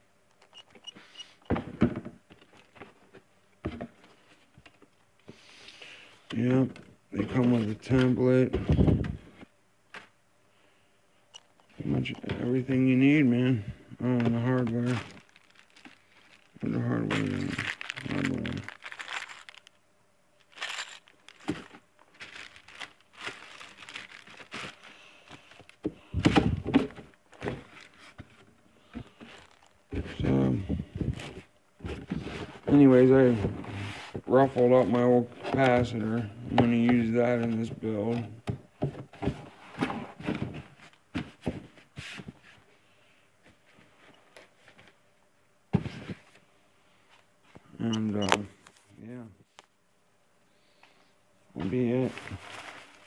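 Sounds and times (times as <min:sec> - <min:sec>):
handling knocks and rustles: 0:11.8 - 0:19.7, 0:20.4 - 0:42.7, 0:45.7 - 0:46.4, 0:51.6 - 0:53.0
plastic packaging crinkling: 0:14.3 - 0:19.8, 0:20.4 - 0:28.2, 0:29.0 - 0:30.3, 0:52.0 - 0:53.0.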